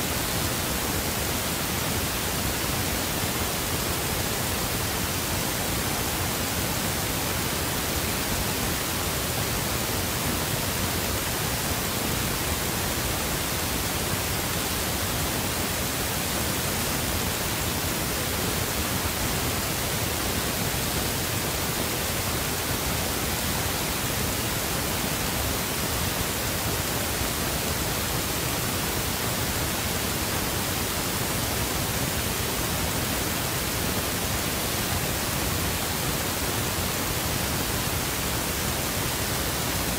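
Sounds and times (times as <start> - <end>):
steady static hiss: 0.0 - 39.9.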